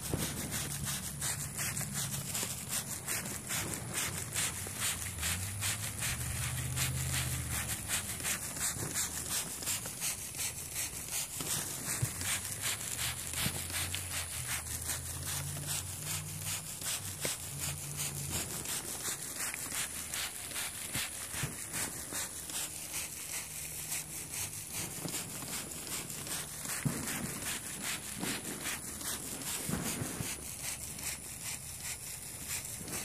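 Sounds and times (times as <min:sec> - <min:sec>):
trigger spray bottle spraying: 0:00.0 - 0:33.0.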